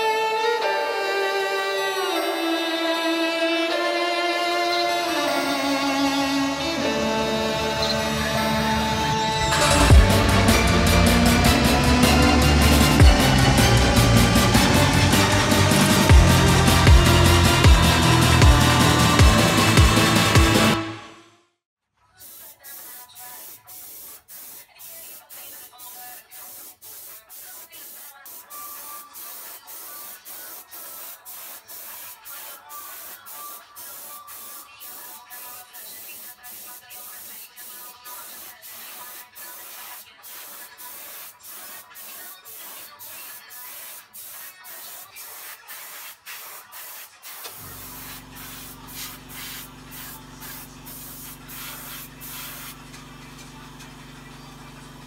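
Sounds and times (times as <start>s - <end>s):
airbrush spraying hiss: 9.6s - 20.3s, 22.2s - 52.8s.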